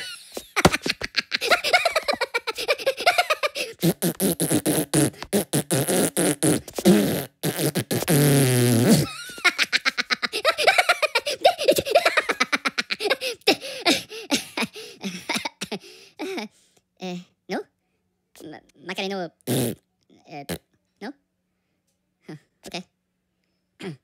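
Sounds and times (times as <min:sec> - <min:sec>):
fart sound: 0:03.7 - 0:09.2, 0:19.4 - 0:19.8.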